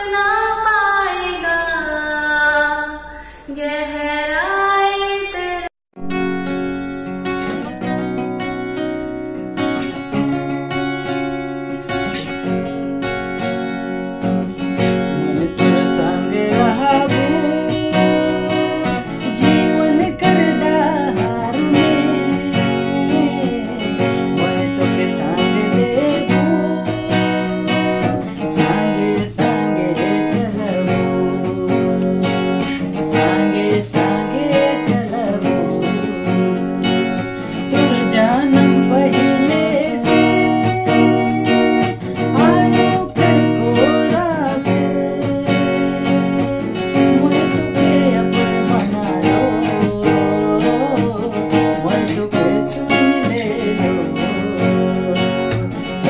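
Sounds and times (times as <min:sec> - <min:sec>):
strummed acoustic guitar: 0:06.0 - 0:56.0
man singing: 0:14.5 - 0:56.0.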